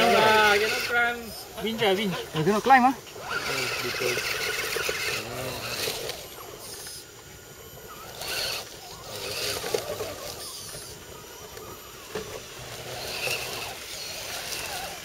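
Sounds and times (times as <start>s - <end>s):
toy truck tyres crunching dirt: 3.2s - 7.0s, 7.8s - 15.0s.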